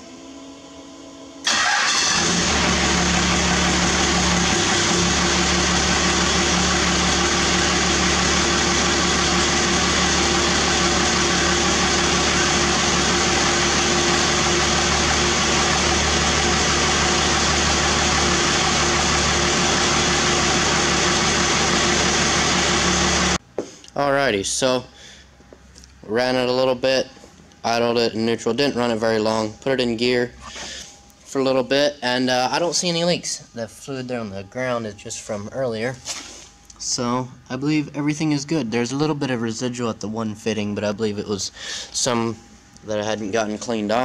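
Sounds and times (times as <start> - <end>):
diesel engine starting and idling: 1.4 - 23.4.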